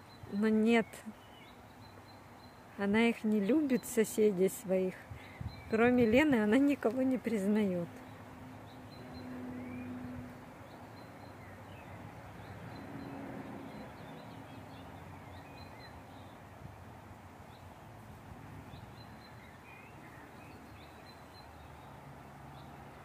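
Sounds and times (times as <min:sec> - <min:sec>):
faint outdoor background hum: 0:00.0 - 0:23.0
small birds chirping: 0:00.0 - 0:23.0.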